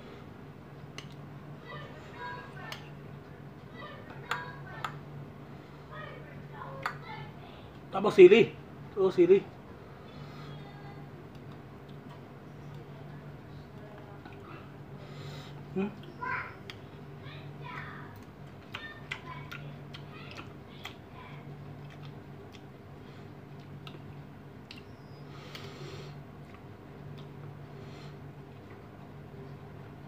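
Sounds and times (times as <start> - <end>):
low steady hum: 0.0 - 30.0.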